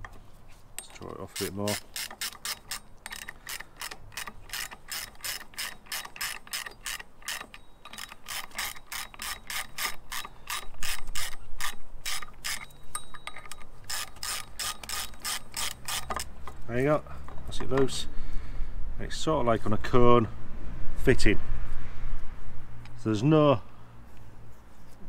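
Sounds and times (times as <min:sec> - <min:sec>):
ratchet wrench clicking: 0:00.8 - 0:16.6.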